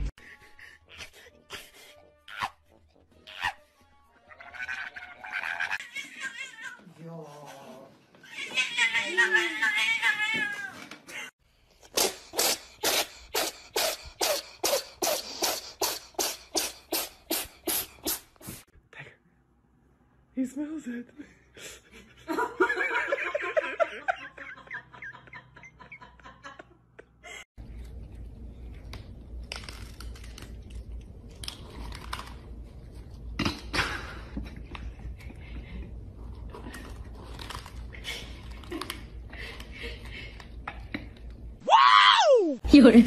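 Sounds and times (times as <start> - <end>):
short breathy hisses: 12.0 - 18.7
cats crunching dry kibble: 27.6 - 33.3, 36.2 - 39.7.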